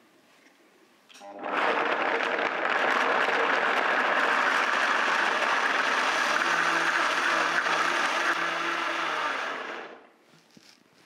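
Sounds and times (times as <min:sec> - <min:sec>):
blender running: 0:01.2 - 0:10.0.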